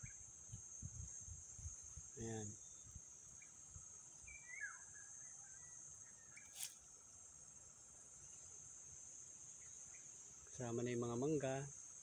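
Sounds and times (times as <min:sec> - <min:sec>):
insects chirping: 0:00.0 - 0:12.0
bird chirping: 0:02.4 - 0:06.6.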